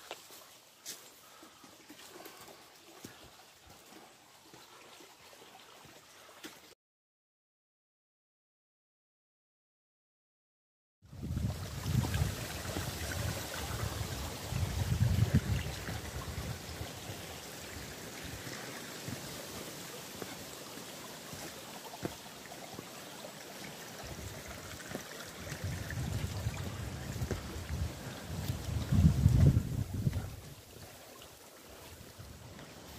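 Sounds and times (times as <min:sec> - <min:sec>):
wind rumble on microphone: 0:11.1 - 0:17.8, 0:25.3 - 0:30.9
water rushing over rocks: 0:11.2 - 0:32.9.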